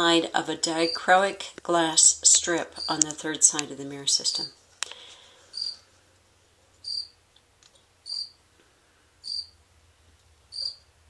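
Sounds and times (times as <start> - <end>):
cricket chirping: 5.5 - 5.8, 6.8 - 7.2, 8.0 - 8.4, 9.2 - 9.6, 10.5 - 10.8.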